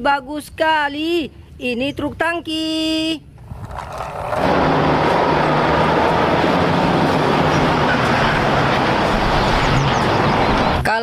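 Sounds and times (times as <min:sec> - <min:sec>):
road and tyre noise: 0:03.3 - 0:11.0
truck engine hum: 0:03.4 - 0:10.9.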